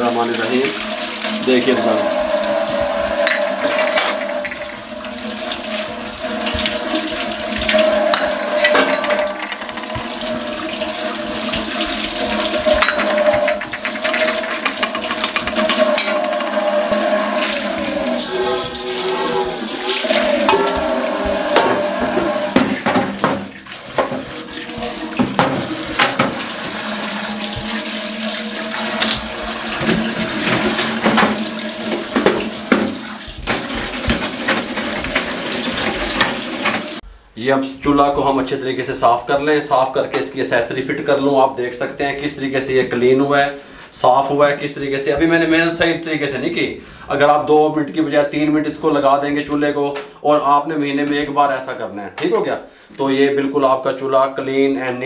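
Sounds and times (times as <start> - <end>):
tap running into metal sink: 0.0 - 37.0.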